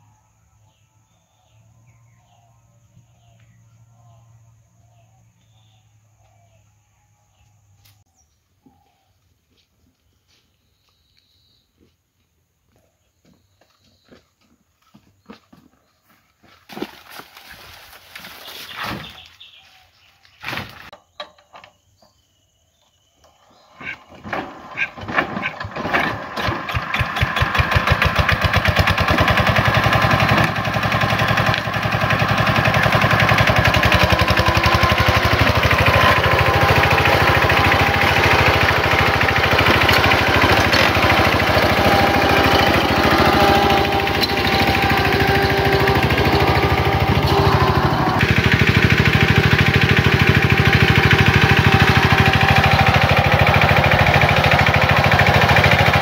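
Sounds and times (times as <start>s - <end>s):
diesel tractor engine running: 23.5s - 56.0s.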